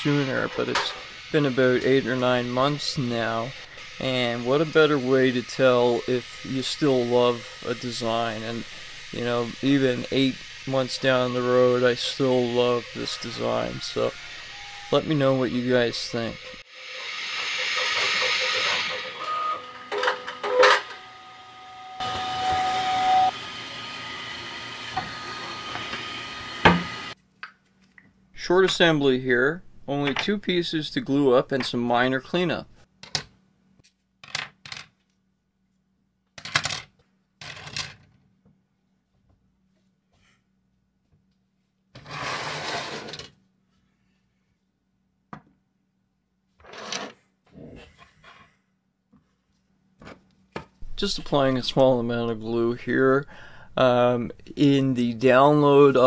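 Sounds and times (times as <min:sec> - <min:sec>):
printer fans hissing: 0:00.0 - 0:27.2
printer steady whine: 0:12.2 - 0:27.2
plastic parts scraping on workbench: 0:42.0 - 0:43.4.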